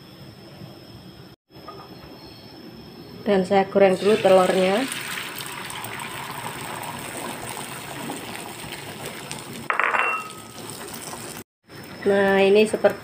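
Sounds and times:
egg sizzling in a pan: 3.9s - 9.7s, 10.3s - 12.1s
ringing clink: 9.7s - 10.6s.

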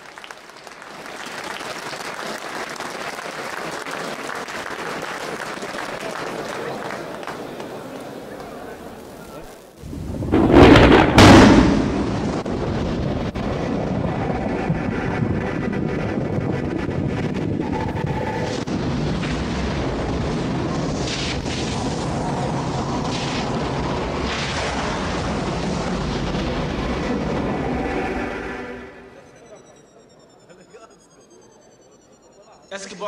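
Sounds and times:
arena crowd roar: 0.1s - 9.7s
loud booms: 9.8s - 28.3s.

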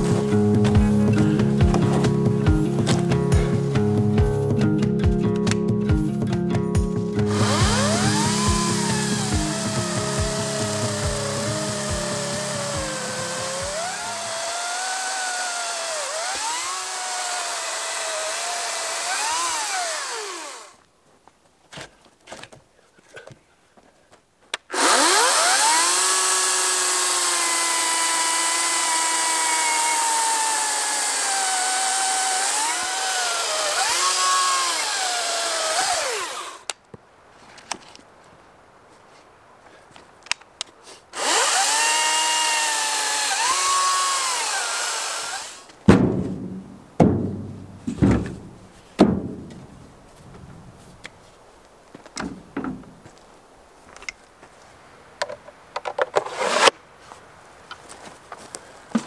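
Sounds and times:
battery chainsaw cutting log: 0.0s - 5.6s, 7.2s - 20.8s, 24.7s - 36.8s, 41.2s - 45.8s, 56.2s - 56.8s.

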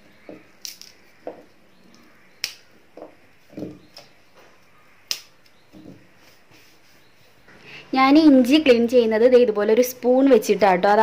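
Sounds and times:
ginger root snapping: 0.6s - 1.1s, 1.9s - 2.7s, 5.0s - 5.6s.

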